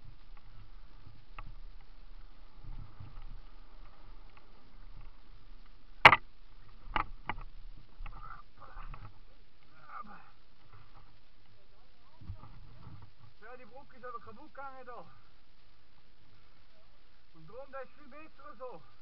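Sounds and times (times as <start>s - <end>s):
bike tyre rumble: 0.0s - 9.3s
sharp clunk: 6.0s - 6.2s.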